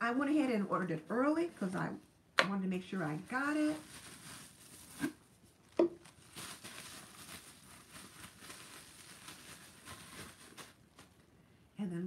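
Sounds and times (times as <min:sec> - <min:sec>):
bubble wrap crinkling: 0:02.9 - 0:11.3.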